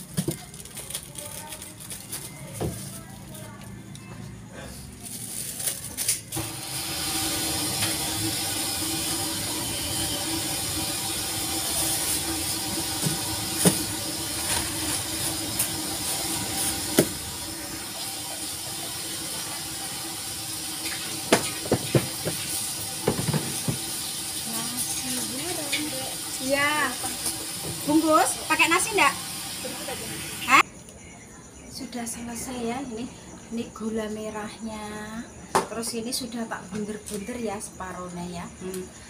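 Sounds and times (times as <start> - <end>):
plastic bags and containers handled: 0.0 - 6.4.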